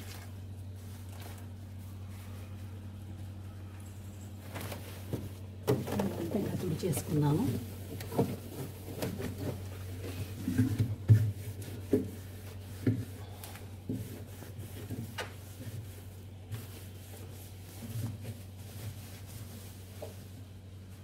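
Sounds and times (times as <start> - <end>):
steady low hum: 0.0 - 21.0
damp cloth wiping plastic: 4.7 - 21.0.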